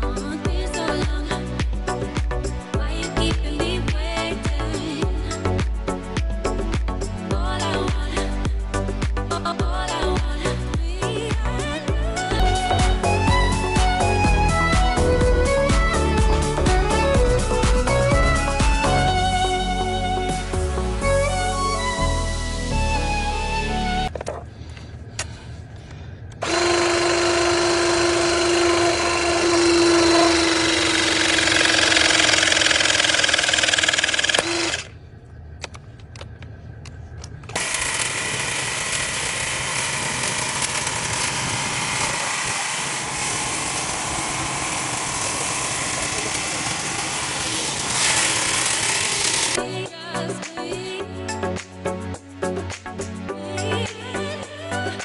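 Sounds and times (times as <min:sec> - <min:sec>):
hydraulic crimping tool whining: 0:26.4 - 0:34.9, 0:37.4 - 0:49.6
machine running: 0:26.4 - 0:35.0, 0:37.4 - 0:49.6.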